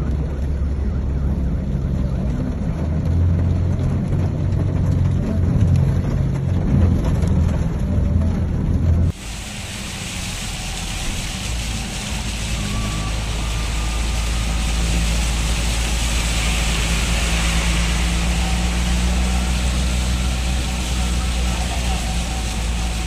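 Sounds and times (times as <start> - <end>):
vehicle engine humming: 0.0 - 23.0
floodwater rushing and splashing: 9.1 - 23.0.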